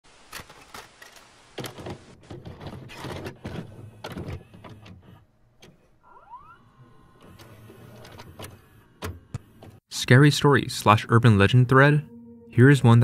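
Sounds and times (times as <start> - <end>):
tape mechanism clunks and clicks: 0.3 - 6.2, 6.8 - 9.8.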